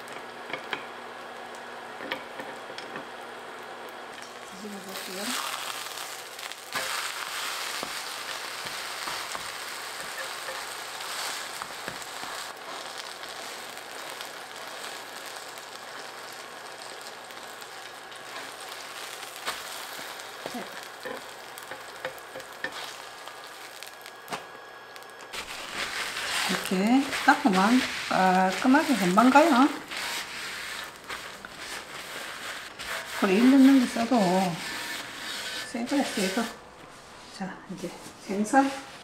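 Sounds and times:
pancake sizzling in oil: 0:00.0 - 0:36.6
spatulas tapping and scraping pan: 0:06.7 - 0:15.4, 0:18.2 - 0:23.0.

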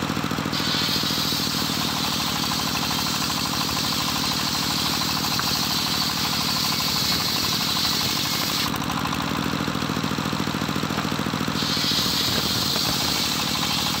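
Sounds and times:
saw bench engine running: 0:00.0 - 0:14.0
saw blade hissing through wood: 0:00.4 - 0:08.8, 0:11.4 - 0:14.0.

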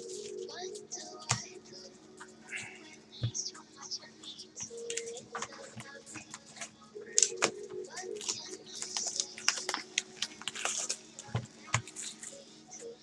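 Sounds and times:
plastic shrink-wrap crinkling and tearing: 0:08.2 - 0:11.2.

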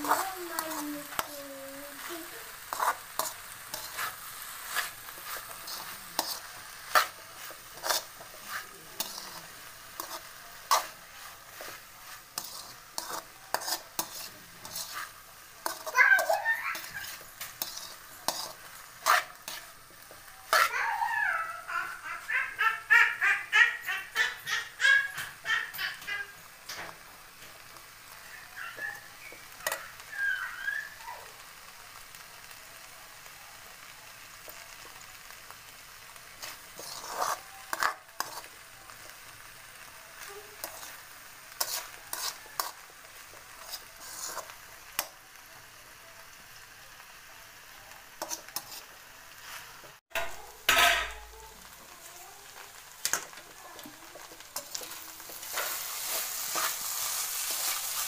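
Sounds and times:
high-pitched voice: 0:00.0 - 0:02.9, 0:15.7 - 0:17.2, 0:20.5 - 0:26.4
metal spoon scraping pan: 0:00.0 - 0:20.7, 0:36.4 - 0:38.5, 0:40.6 - 0:42.9, 0:43.6 - 0:45.1, 0:48.2 - 0:48.9, 0:53.0 - 0:58.0
frying sizzle: 0:00.0 - 0:58.0.

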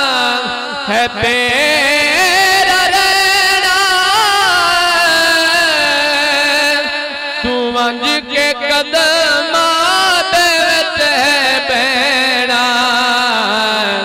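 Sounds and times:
man singing through microphone: 0:00.0 - 0:14.0.

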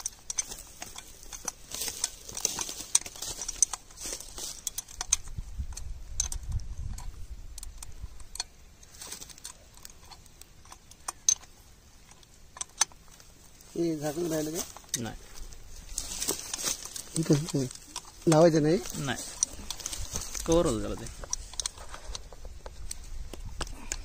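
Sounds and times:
spanner clicking on metal bolts: 0:00.0 - 0:13.7.

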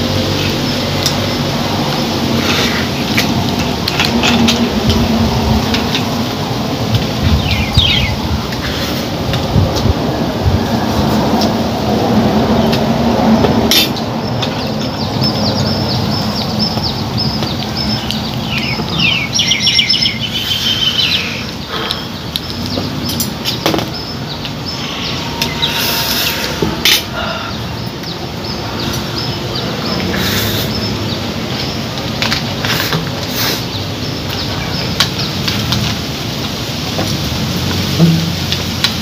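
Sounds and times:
steady noisy background: 0:00.0 - 0:39.0
small birds chirping: 0:07.2 - 0:09.0, 0:13.7 - 0:36.7
sharp knocks: 0:38.0 - 0:38.5.

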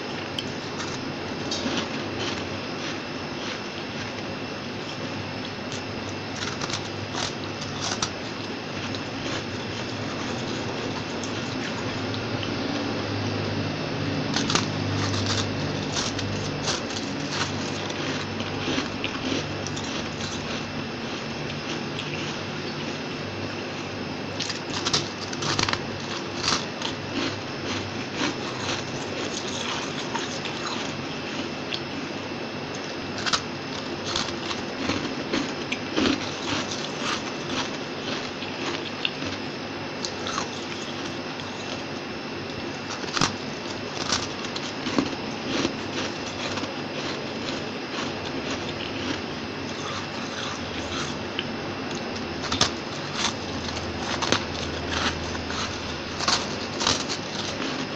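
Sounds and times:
crunching and chewing frost: 0:00.0 - 0:57.9
faint high-pitched hum: 0:00.0 - 0:57.9.

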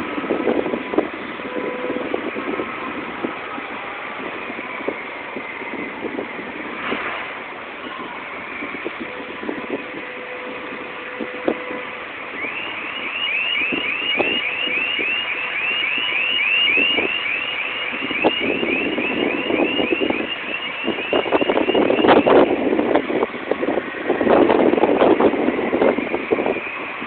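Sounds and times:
warning alarm rising chirps: 0:12.3 - 0:22.4.

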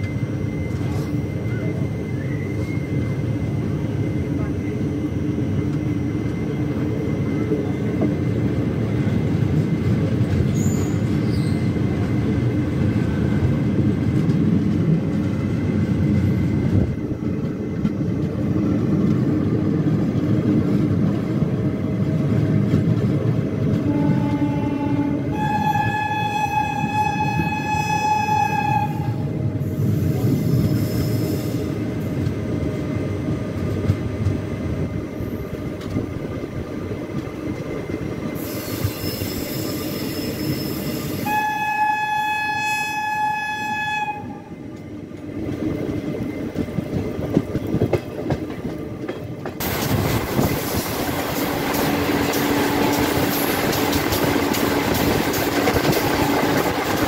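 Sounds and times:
train rumble: 0:00.0 - 0:57.0
train wheels clattering on rails: 0:05.6 - 0:24.6, 0:33.3 - 0:34.6, 0:44.7 - 0:57.0
train horn blasts: 0:23.8 - 0:29.3, 0:41.2 - 0:44.5.

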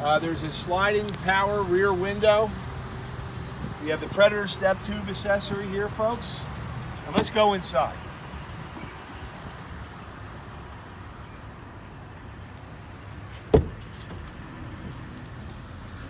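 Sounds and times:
sharp thump: 0:13.5 - 0:14.2.

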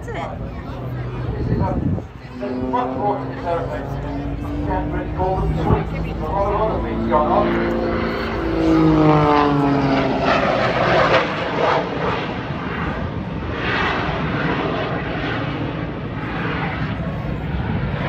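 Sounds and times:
biplane piston engine drone: 0:00.0 - 0:18.0.

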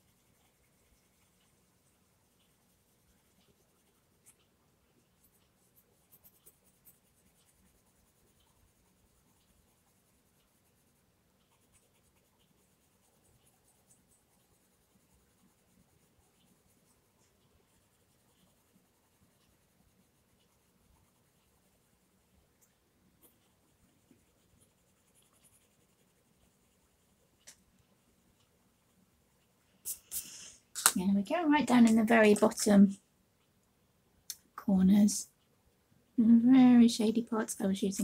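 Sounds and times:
pencil scratching on paper: 0:00.0 - 0:22.4, 0:23.1 - 0:27.5.

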